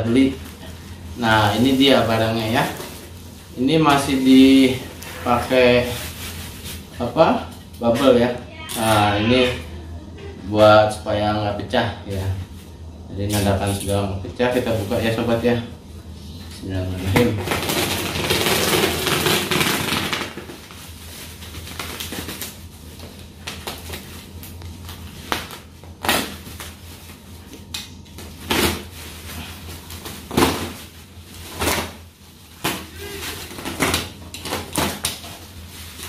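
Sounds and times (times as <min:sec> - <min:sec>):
crinkling of plastic: 0:17.1 - 0:36.0
box cutter slicing bubble wrap: 0:17.2 - 0:20.5.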